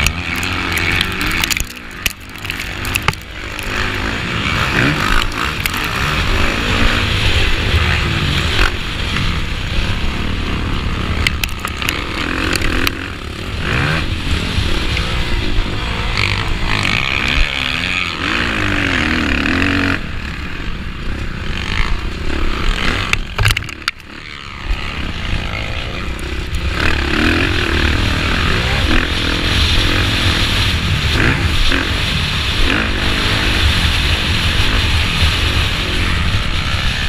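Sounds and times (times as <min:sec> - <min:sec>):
motocross bike engine revving: 0:00.0 - 0:37.0
wind noise on microphone: 0:20.0 - 0:37.0.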